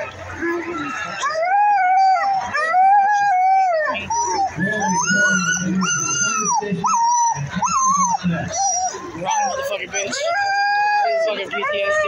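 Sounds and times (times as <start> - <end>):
sled dogs howling and yipping: 0.0 - 12.0.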